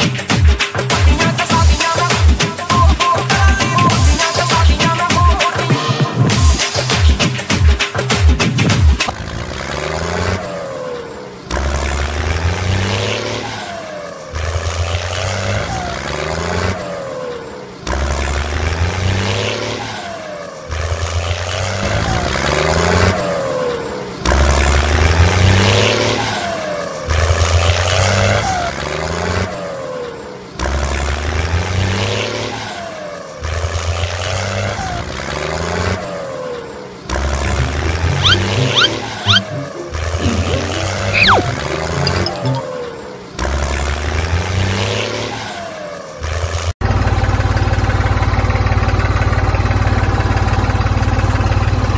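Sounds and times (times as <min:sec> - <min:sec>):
tractor engine revving: 0:34.1 - 0:45.4.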